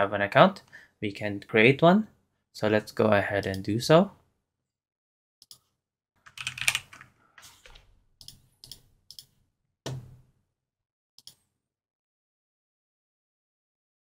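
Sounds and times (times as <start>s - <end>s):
computer keyboard typing: 6.2s - 9.3s.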